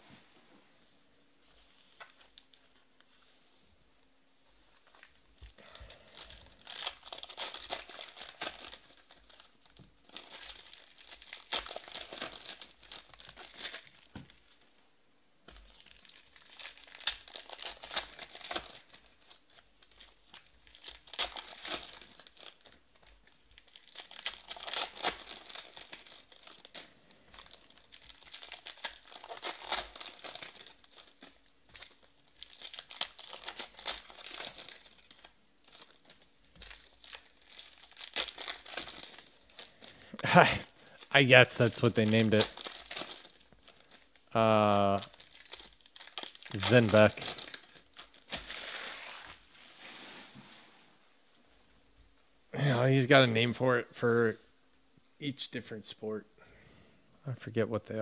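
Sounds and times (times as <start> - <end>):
foil wrappers tearing and crinkling: 4.9 - 14.6, 15.5 - 50.3.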